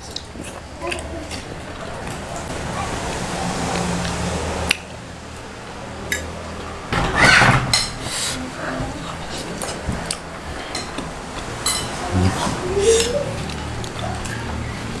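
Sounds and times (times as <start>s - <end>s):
low steady hum: 11.2s - 14.0s
cutlery clinking on ceramic plates: 11.6s - 12.0s.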